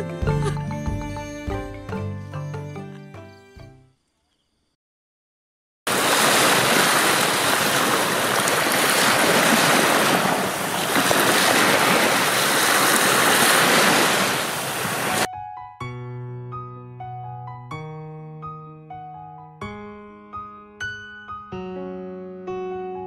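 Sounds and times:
sea surf washing onto beach: 5.9s - 15.3s.

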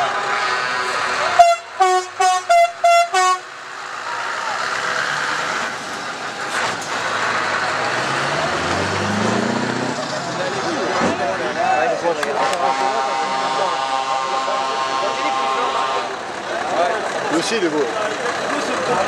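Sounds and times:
truck air horn blasts: 0.0s - 3.6s, 12.4s - 16.3s
truck engine running: 0.0s - 19.0s.

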